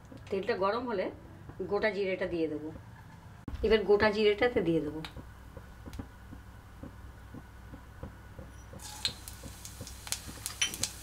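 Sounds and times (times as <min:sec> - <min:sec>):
seeds hissing and crackling in oil: 0:08.8 - 0:11.0.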